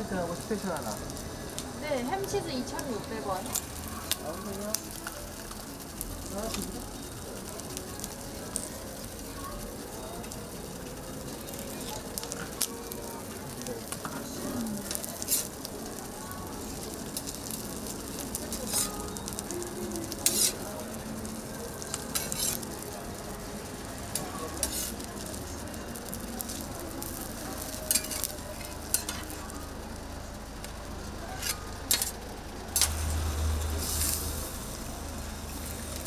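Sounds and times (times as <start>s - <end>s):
food sizzling on a griddle: 0.0s - 36.0s
metal spatula clinks and scrapes: 20.2s - 20.6s, 27.9s - 28.3s, 31.4s - 32.1s.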